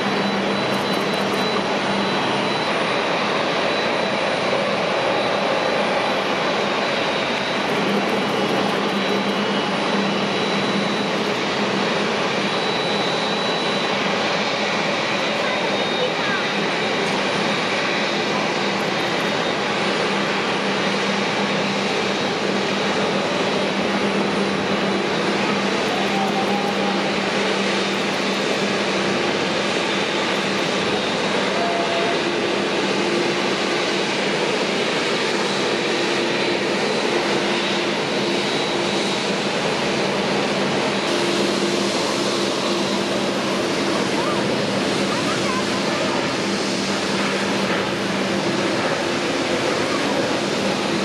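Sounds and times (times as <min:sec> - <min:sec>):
jet engines running: 0:00.0 - 0:51.0.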